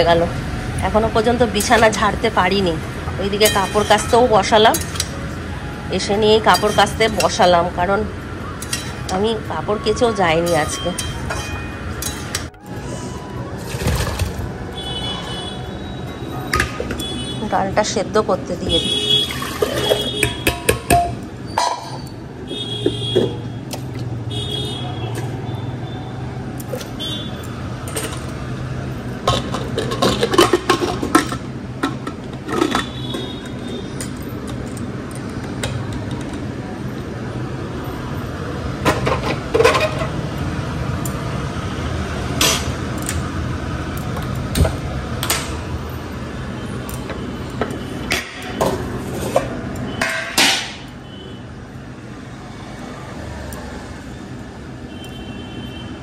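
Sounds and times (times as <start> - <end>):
metal utensils clinking: 0.8 - 2.6, 3.2 - 5.4, 6.0 - 7.9, 8.6 - 12.6, 19.2 - 22.2, 26.6 - 28.4, 29.0 - 37.0, 38.8 - 40.2.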